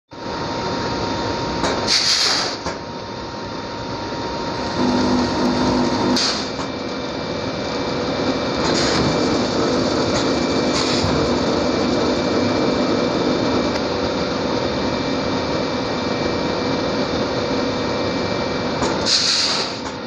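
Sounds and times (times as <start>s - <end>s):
pneumatic hiss: 1.7s - 2.7s, 6.1s - 6.7s, 8.6s - 9.2s, 10.1s - 11.2s, 18.9s - 20.0s
packing machine running: 3.4s - 20.0s.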